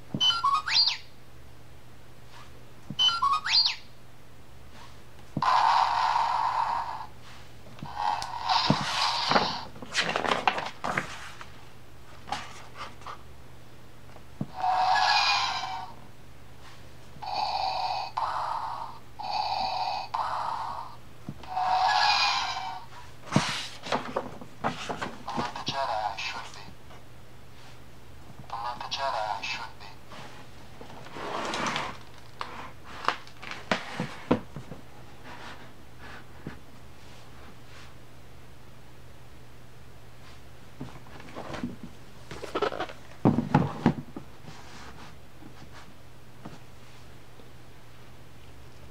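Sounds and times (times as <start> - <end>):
book rustling: 8.7 - 13.2, 23.2 - 25.6.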